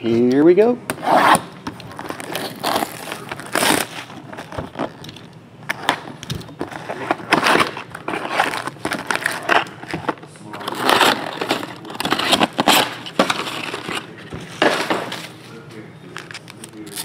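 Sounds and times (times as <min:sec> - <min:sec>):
shrink wrap crinkling and tearing: 0:01.2 - 0:05.3, 0:06.6 - 0:14.2, 0:16.2 - 0:17.0
card packs rustling: 0:01.2 - 0:17.0.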